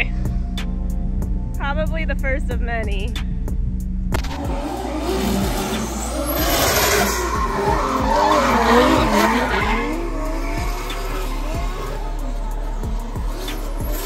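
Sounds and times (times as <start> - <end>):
car engine revving: 3.1 - 14.0
tires skidding and squealing: 4.2 - 14.0.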